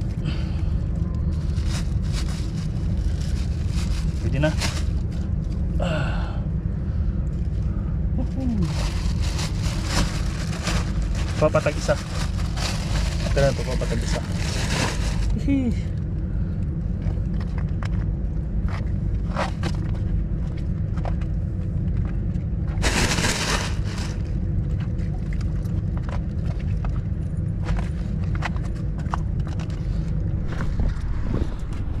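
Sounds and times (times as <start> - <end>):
knocks and scrapes: 27.6 - 32.0
wind buffeting microphone: 30.2 - 32.0.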